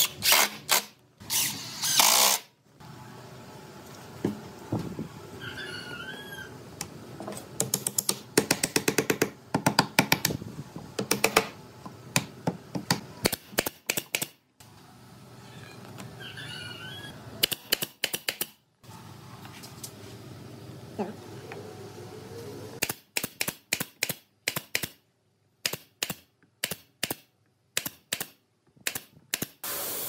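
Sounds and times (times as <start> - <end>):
pneumatic nail gun firing: 0.0 - 2.5, 25.6 - 30.0.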